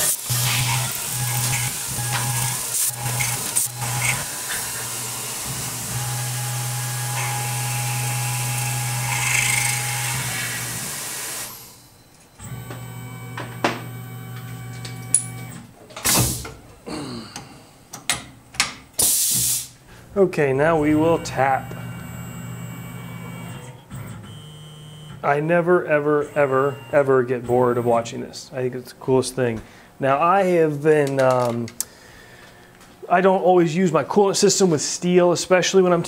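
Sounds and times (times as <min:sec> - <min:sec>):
spindle motor drone: 0:00.0 - 0:11.7, 0:20.6 - 0:25.2
coolant spray hiss: 0:19.0 - 0:19.8.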